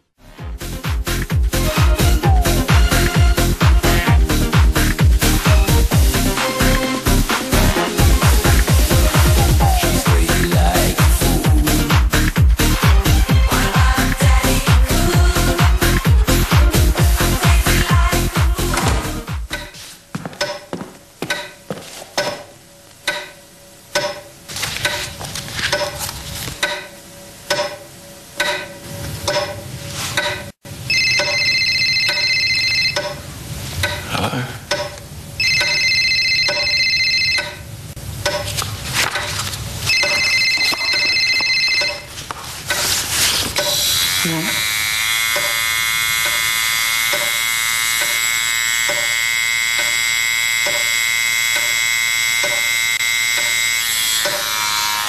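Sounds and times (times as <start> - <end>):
phone ringing: 30.9 - 33.2, 35.4 - 37.7, 39.9 - 42.2
electronic buzzing tone: 39.9 - 42.1, 43.6 - 54.8.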